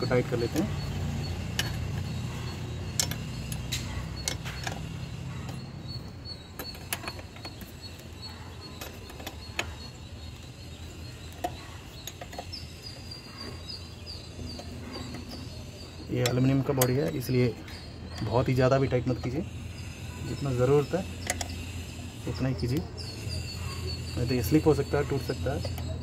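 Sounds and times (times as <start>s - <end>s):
wrench clicking on metal: 0.5s - 5.6s.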